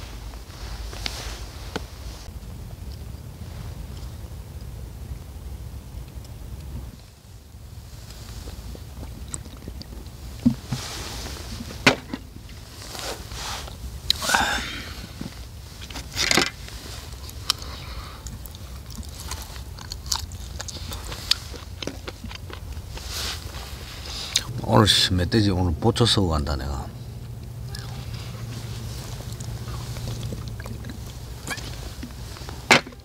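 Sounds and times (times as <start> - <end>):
low rumble: 0.0 - 33.0
man chewing and biting: 8.0 - 13.0, 13.7 - 24.5, 27.2 - 33.0.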